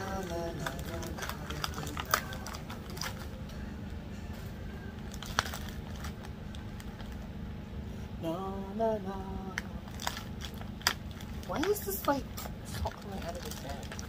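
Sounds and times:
plastic bag handled: 0.0 - 3.3, 5.0 - 7.3, 9.9 - 14.0
steady low hum: 0.0 - 14.0.

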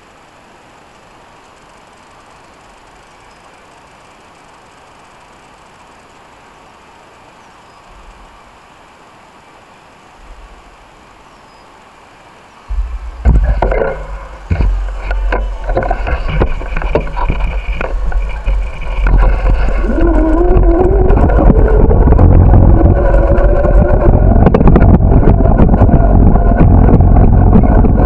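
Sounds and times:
bicycle rattling knocks: 12.7 - 21.4
whine rising in pitch: 12.7 - 28.0
wind buffeting microphone: 12.7 - 28.0.

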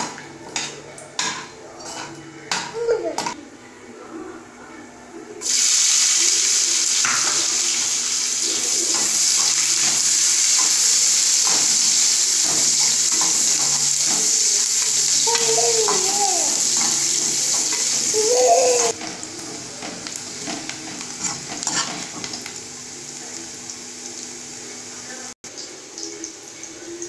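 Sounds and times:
oil sizzling: 5.4 - 27.0.

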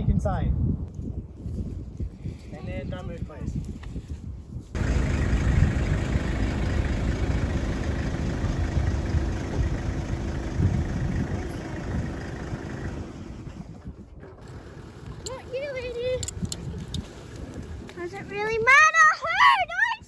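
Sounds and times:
engine low rumble: 4.7 - 18.6.

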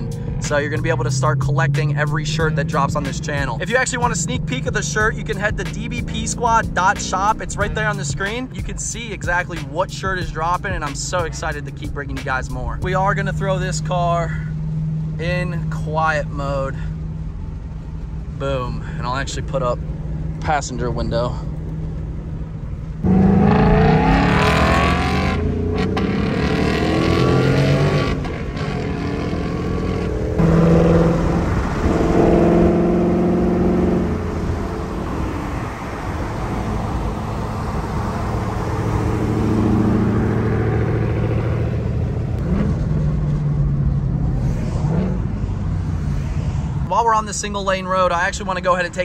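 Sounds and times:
car engine revving past: 23.0 - 46.9.

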